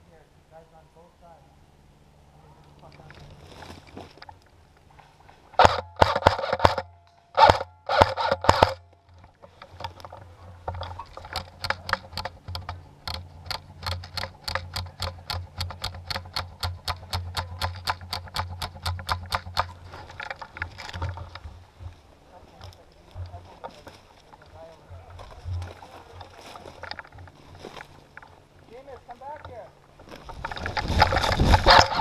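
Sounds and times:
airsoft gun firing bursts: 5.6 - 8.8
evenly spaced clicks: 7.4 - 21.4.

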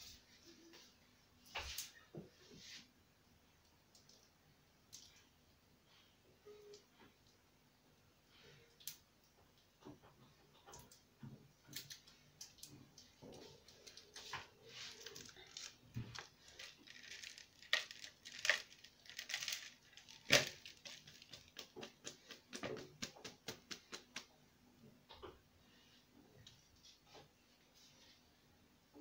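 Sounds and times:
dry noodles crackling in bowl: 11.7 - 24.2.

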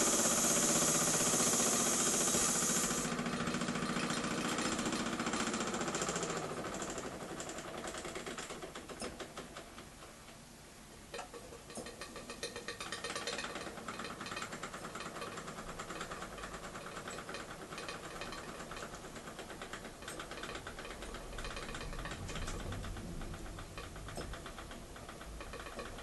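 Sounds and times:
model steam engine beating: 0.0 - 8.7.

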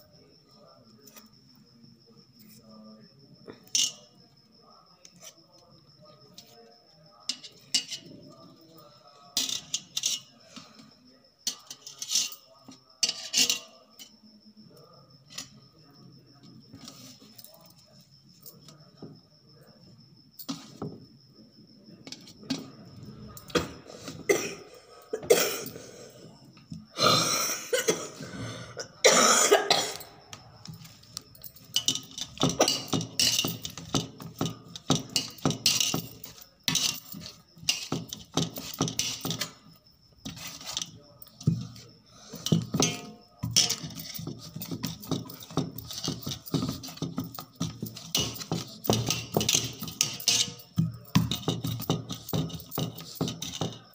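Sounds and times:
glass bangles clinking on metal: 3.6 - 4.1, 7.2 - 10.4, 11.4 - 14.2, 29.9 - 53.9
potatoes mashed on steel plate: 31.7 - 39.6.

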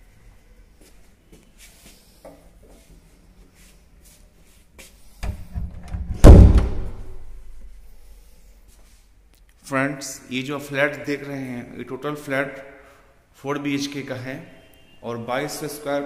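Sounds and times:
door pushed shut: 5.2 - 7.2
loud door slam ringing: 5.9 - 7.3.

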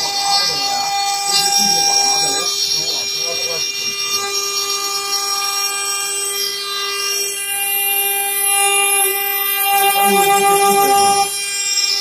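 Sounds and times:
router spindle whining: 0.0 - 12.0.

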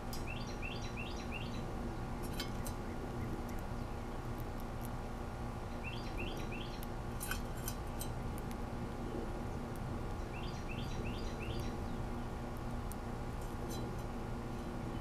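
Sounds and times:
bird chirping: 0.0 - 4.2, 5.7 - 6.9, 10.2 - 12.3
low outdoor rumble: 0.0 - 15.0.

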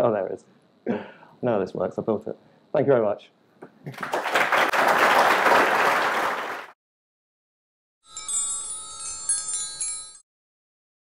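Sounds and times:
audience applause: 3.8 - 6.8
bell-like chime jingle: 8.0 - 10.3.

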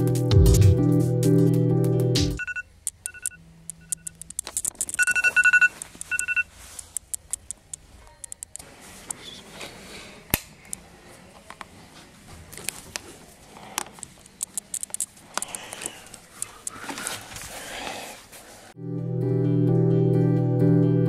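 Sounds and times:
phone alarm beeps: 2.4 - 6.5
clicks and rustling: 2.9 - 9.2, 13.7 - 17.5.

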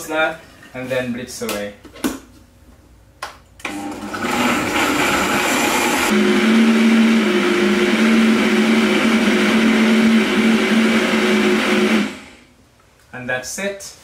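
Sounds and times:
blender running: 3.6 - 12.5.

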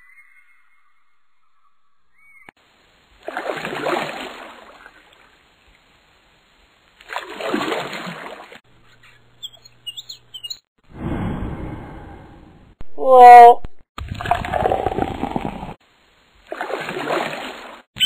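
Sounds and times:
sea waves breaking: 3.2 - 5.4, 7.0 - 8.6, 16.5 - 17.9.

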